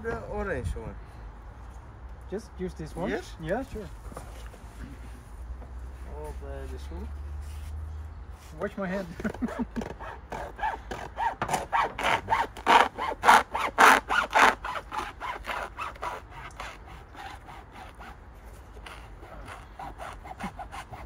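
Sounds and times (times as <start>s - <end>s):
hand saw cutting sneaker: 9.1s - 21.0s.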